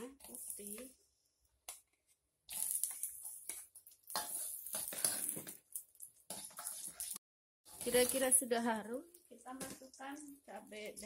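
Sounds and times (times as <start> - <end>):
shallots sizzling in hot oil: 0.0 - 1.0, 2.5 - 11.0
metal ladle stirring in wok: 2.8 - 8.4.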